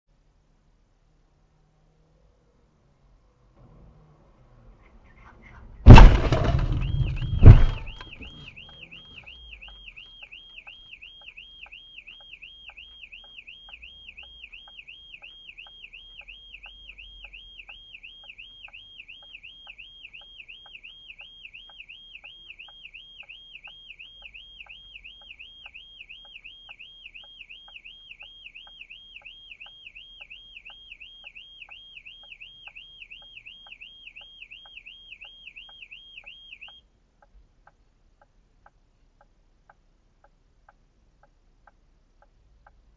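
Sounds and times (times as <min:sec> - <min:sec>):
bang: 0:05.9 - 0:08.1
car crash: 0:05.9 - 0:08.4
car alarm warbling: 0:05.9 - 0:36.8
regular ticking: 0:05.9 - 0:42.9.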